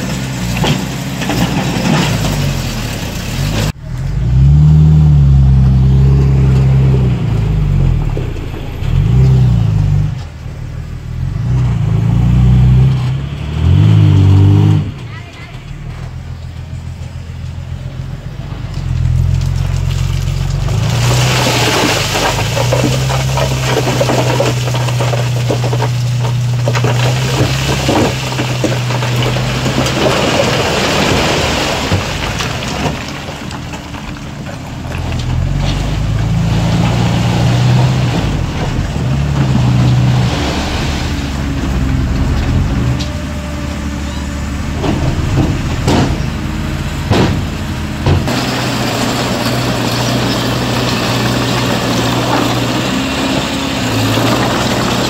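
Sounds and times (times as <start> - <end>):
heavy diesel engine: 0.0 - 55.0
stone rattling and crunching: 18.8 - 37.0, 44.6 - 55.0.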